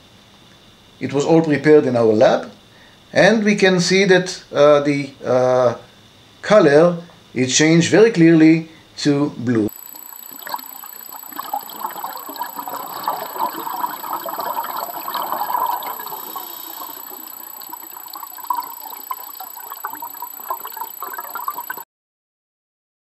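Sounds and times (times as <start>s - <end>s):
water bubbling and gurgling: 9.7s - 21.8s.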